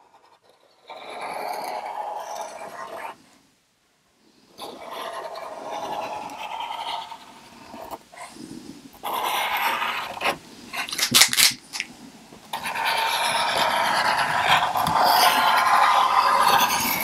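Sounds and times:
marker drawing on surface: 4.6 - 8.3, 9.0 - 10.9, 12.5 - 17.0.

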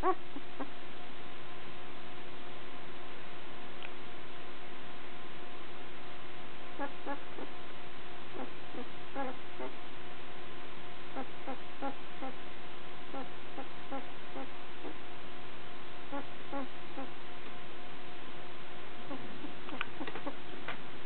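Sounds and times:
puppy squeaking and whimpering: 0.0 - 0.7, 6.8 - 7.2, 8.4 - 9.8, 19.1 - 20.4.

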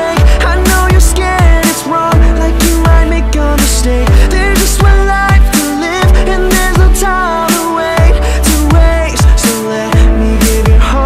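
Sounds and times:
electronic pop music: 0.0 - 11.0.

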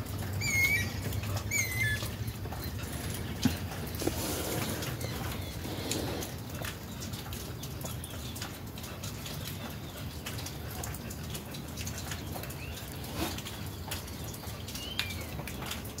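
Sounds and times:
light clicks and rustles: 0.0 - 16.0
bird chirps: 0.4 - 2.7.

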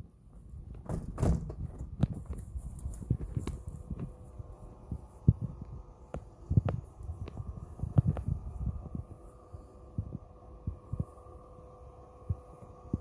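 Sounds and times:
footsteps and handling thumps: 0.3 - 4.2
awning electric motor hum: 2.2 - 13.0.

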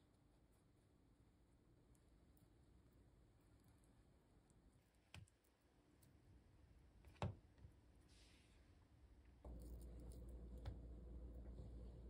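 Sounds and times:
low steady hum: 8.7 - 12.0.

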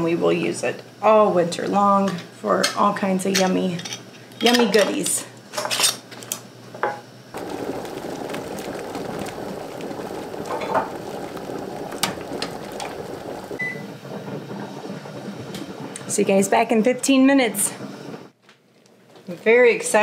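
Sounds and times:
water boiling: 7.4 - 17.7.

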